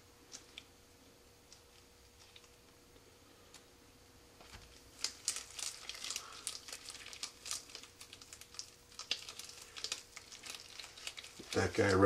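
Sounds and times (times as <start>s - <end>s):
faint steady hum: 0.0s - 12.0s
gloved hands rustling and squeaking: 4.8s - 12.0s.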